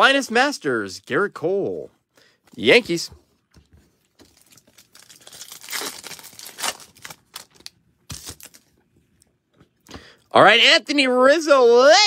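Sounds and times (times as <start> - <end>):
cards rustling: 3.6 - 8.8
foil wrapper tearing and crinkling: 4.2 - 8.7.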